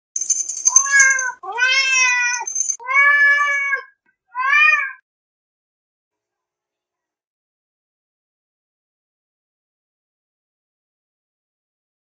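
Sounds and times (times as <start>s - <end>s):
cat meowing: 0.7s - 5.0s.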